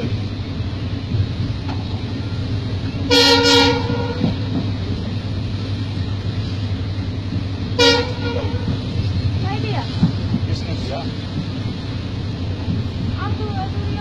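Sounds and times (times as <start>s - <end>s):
train coach rumble: 0.0s - 14.0s
train horn blast: 3.1s - 4.5s, 7.7s - 9.0s.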